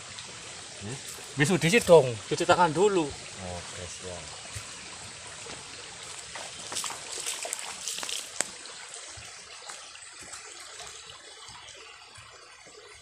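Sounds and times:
water trickling: 0:00.0 - 0:13.0.

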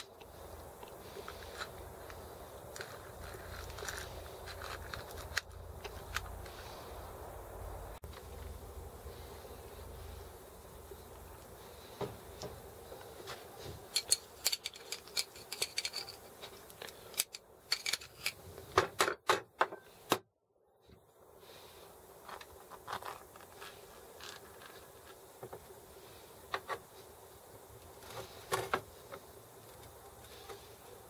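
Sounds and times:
small metal parts clicking: 0:13.9 - 0:18.4.

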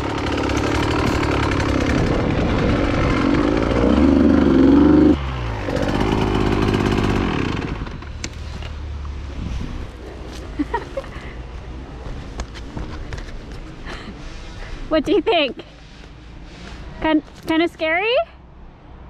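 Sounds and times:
dirt bike engine revving: 0:00.0 - 0:08.1.

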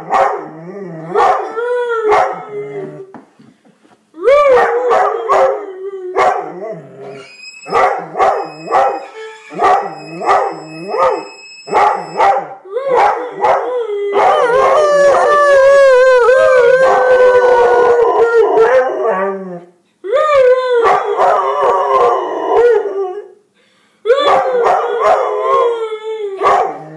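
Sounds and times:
dog howling: 0:04.2 - 0:19.6, 0:24.1 - 0:26.9
high violin note: 0:08.4 - 0:12.2.

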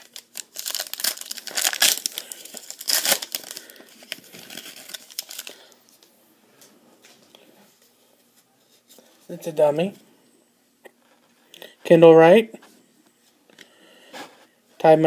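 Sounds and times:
foil wrapper crinkling and tearing: 0:00.0 - 0:05.8.

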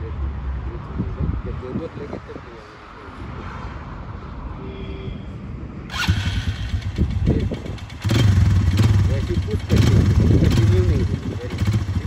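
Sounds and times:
quad engine revving: 0:05.9 - 0:12.0.

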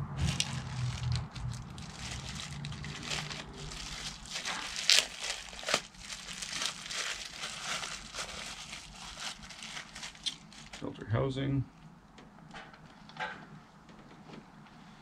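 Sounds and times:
low hum: 0:00.0 - 0:09.4
parts rustling and crinkling: 0:00.2 - 0:10.9.

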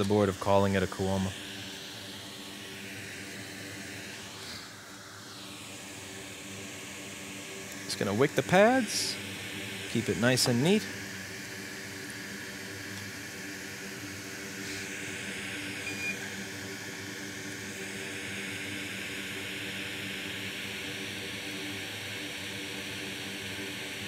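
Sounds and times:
fan-like hiss: 0:00.0 - 0:24.0.

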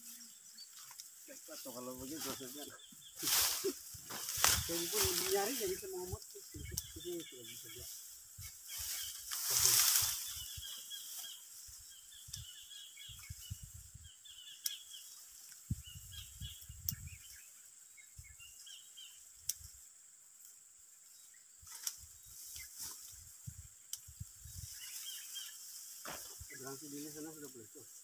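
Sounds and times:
dry rice stalks rustling: 0:00.0 - 0:14.0, 0:21.6 - 0:28.0
small birds chirping: 0:00.0 - 0:28.0.

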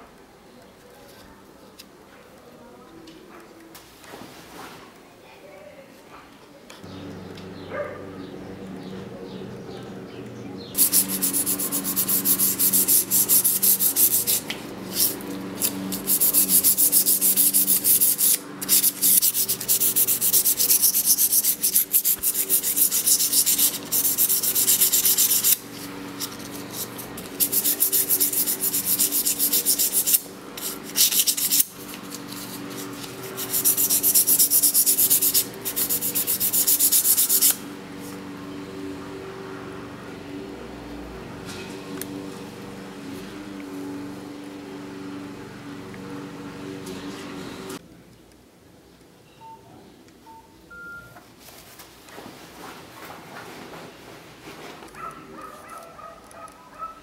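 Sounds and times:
steady low hum: 0:06.8 - 0:47.8
abrasive scratching steel blade: 0:10.8 - 0:37.6.

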